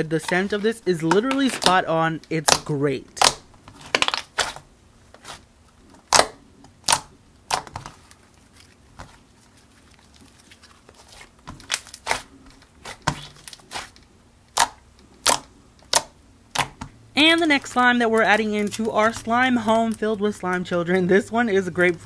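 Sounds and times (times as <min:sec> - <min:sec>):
slime squishing and popping: 0:02.4 - 0:04.6, 0:06.0 - 0:07.9, 0:11.5 - 0:17.8.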